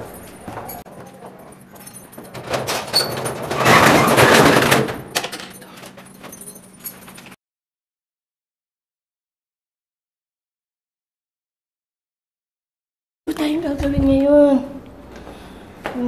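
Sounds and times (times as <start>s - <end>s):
door opening: 0.0s - 7.4s
keys jangling in door lock: 0.0s - 7.4s.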